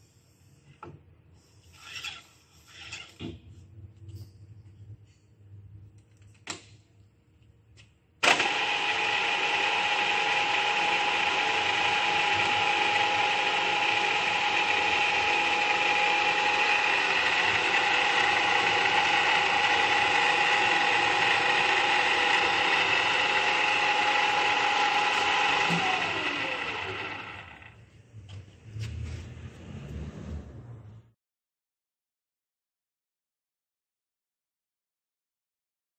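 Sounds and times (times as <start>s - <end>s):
radial drill gear whine: 8.2s - 27.7s.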